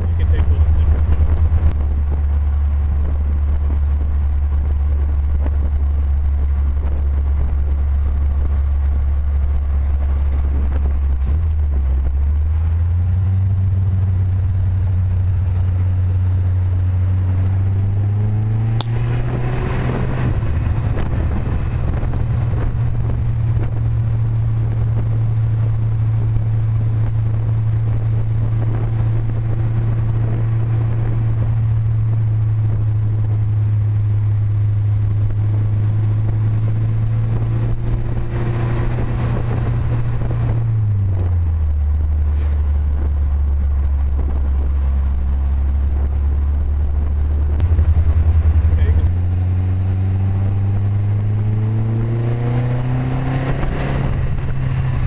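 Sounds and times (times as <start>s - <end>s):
car engine droning: 0.0s - 55.0s.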